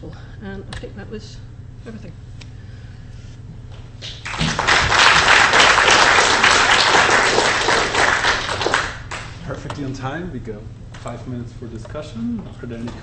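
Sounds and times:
audience applauding: 4.0 - 9.4.

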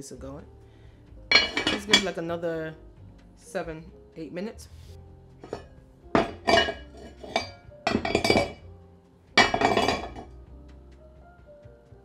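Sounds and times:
cast-iron lid clinking on pot: 1.3 - 2.2, 5.4 - 8.6, 9.4 - 10.3.

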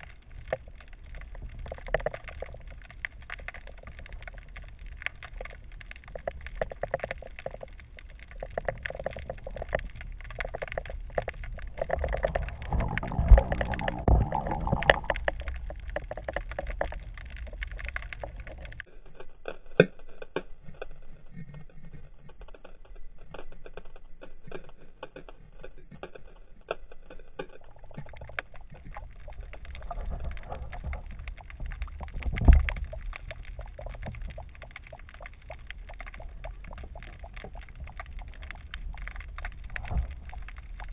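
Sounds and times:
underwater rumble: 0.0 - 18.9, 27.6 - 40.9
small underwater clicks: 0.0 - 40.9.

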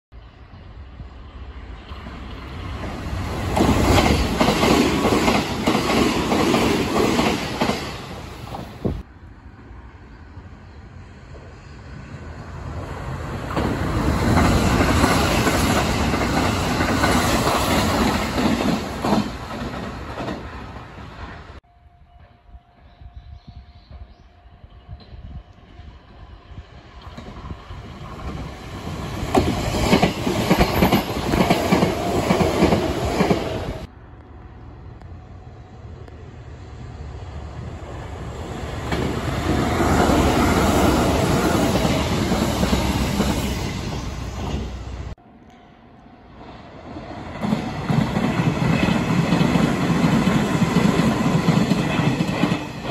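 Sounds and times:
electric train passing: 0.2 - 52.9.

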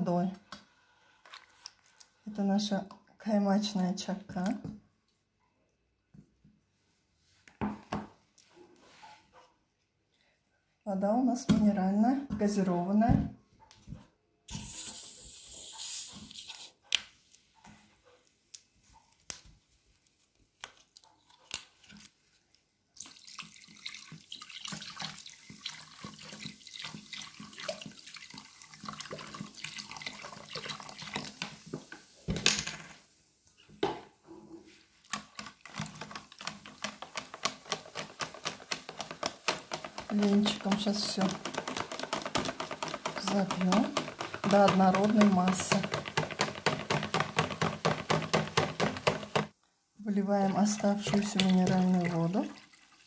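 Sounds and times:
water pouring into bowl: 23.0 - 31.6, 50.4 - 53.0
whisk rattling against bowl: 35.1 - 49.5, 50.5 - 52.4.

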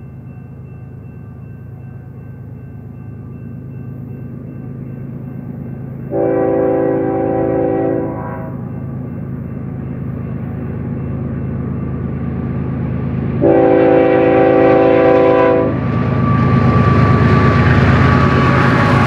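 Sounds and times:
locomotive engines droning: 0.0 - 19.0
locomotive air horn blast: 6.1 - 8.6, 13.4 - 15.8.

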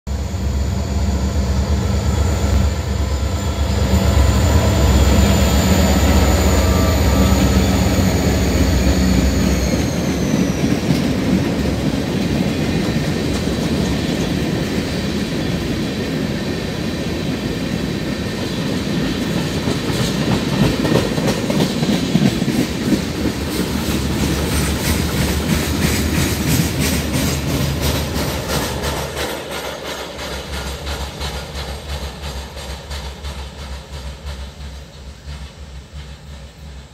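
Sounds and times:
diesel locomotive engine whining: 0.1 - 36.9
wheels clacking over rail joints: 19.2 - 36.9.

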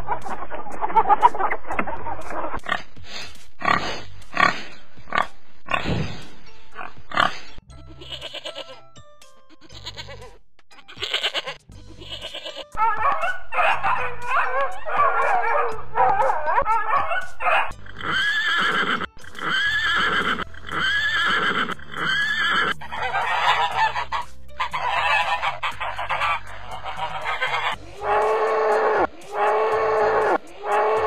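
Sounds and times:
background music: 0.0 - 31.0
wavering animal cries: 7.9 - 8.8, 9.5 - 31.0
geese honking: 12.0 - 31.0
horse whinnying: 14.2 - 24.1, 24.7 - 31.0.

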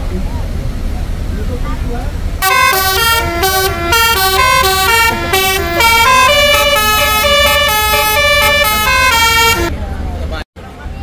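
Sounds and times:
musical bus horn playing a tune: 2.4 - 9.7.

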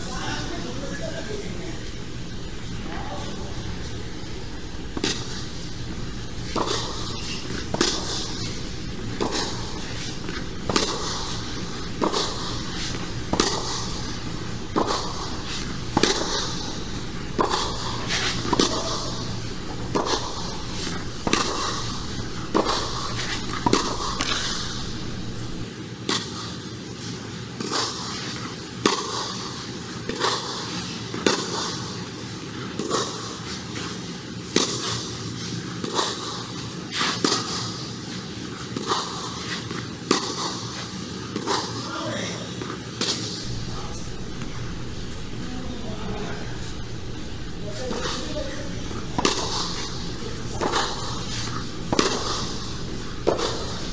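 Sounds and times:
tennis racquet striking ball: 6.0 - 25.6.

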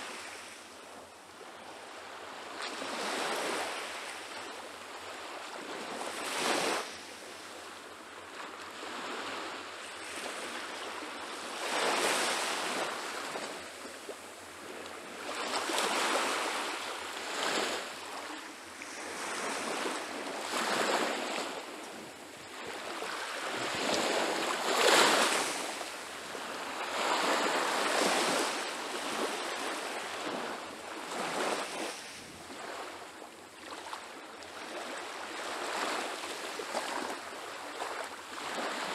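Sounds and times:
small waves washing on sandy shore: 0.0 - 38.9.

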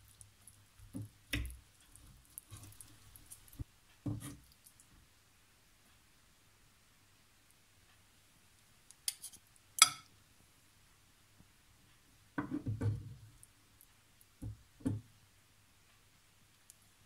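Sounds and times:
ceramic plates or cutlery clinking: 9.1 - 10.1.

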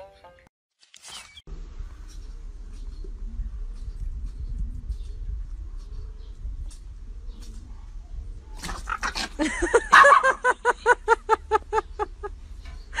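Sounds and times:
dog yapping: 8.6 - 10.4.

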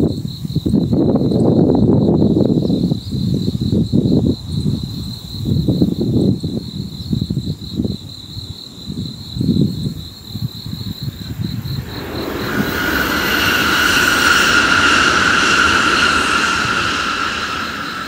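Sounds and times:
low gusts of wind: 10.6 - 18.0
bullet train passing: 11.1 - 18.0.

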